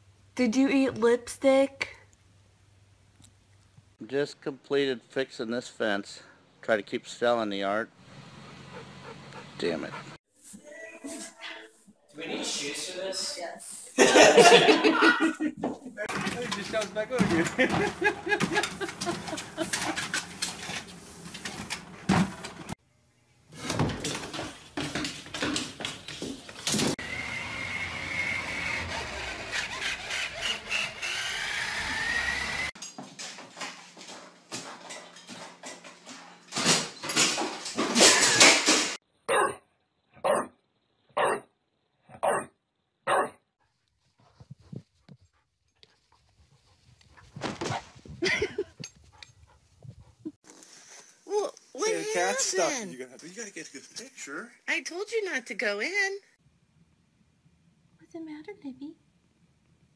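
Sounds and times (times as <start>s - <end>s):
toy car electric motor whining: 27.0s - 32.8s
dog barking: 39.3s - 39.6s, 40.2s - 41.5s, 42.1s - 43.4s.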